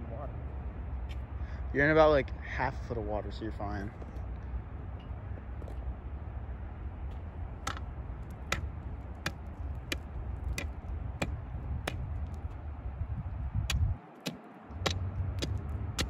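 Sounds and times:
ice spud striking pond ice: 0:07.6 - 0:12.4, 0:13.7 - 0:16.0.

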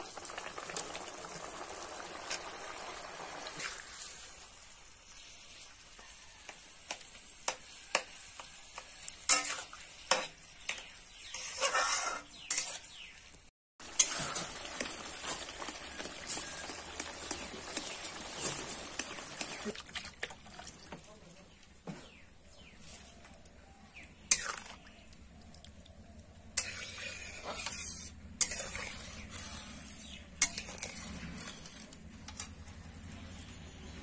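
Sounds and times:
tomatoes sizzling in hot oil: 0:00.0 - 0:19.8, 0:26.6 - 0:31.1
metal spatula scraping a pan: 0:07.5 - 0:13.1, 0:13.8 - 0:19.7, 0:24.2 - 0:24.8, 0:26.5 - 0:32.8.

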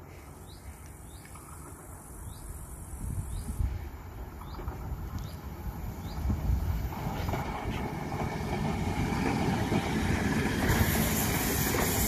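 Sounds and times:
distant train rumble: 0:00.0 - 0:12.0
insects chirring: 0:00.4 - 0:06.9.

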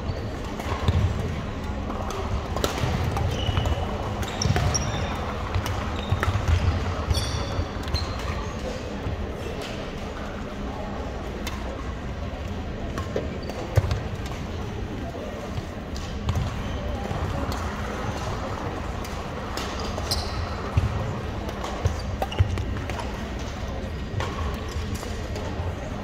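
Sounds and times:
background chatter: 0:00.0 - 0:26.0
sneakers squeaking on hardwood: 0:03.3 - 0:08.3, 0:19.8 - 0:20.6.

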